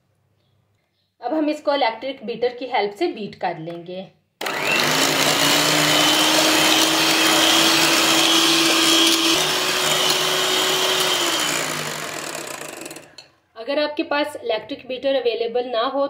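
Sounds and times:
electric hand mixer whine: 4.4s - 13.2s.

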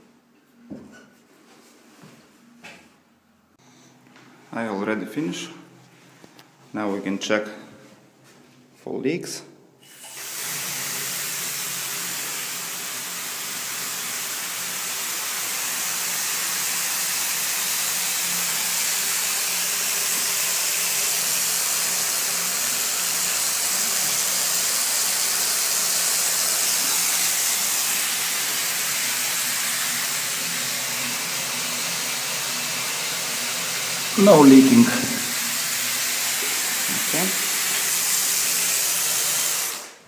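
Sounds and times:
water running into bathtub: 9.9s - 40.0s.

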